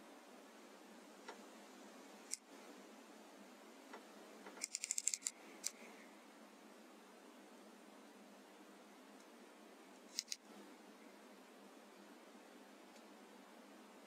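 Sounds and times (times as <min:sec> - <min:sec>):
faint microphone hiss: 0:00.0 - 0:14.0
scope clicks: 0:04.5 - 0:05.8.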